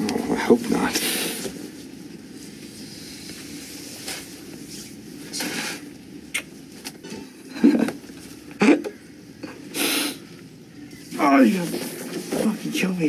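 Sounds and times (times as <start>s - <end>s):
low ambient hiss: 0.0s - 13.0s
soft rustles: 0.5s - 5.9s, 11.0s - 13.0s.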